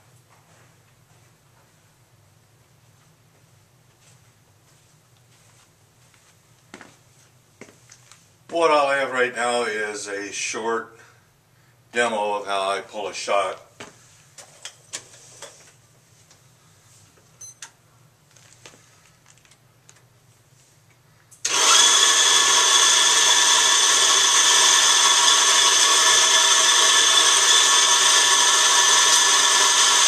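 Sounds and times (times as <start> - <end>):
electric coffee grinder whining: 21.4 - 30.0.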